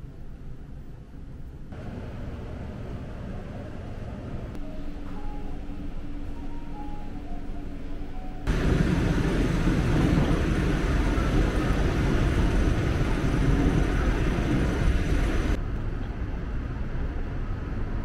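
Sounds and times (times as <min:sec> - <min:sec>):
moving vehicle rumble: 0:08.5 - 0:18.0.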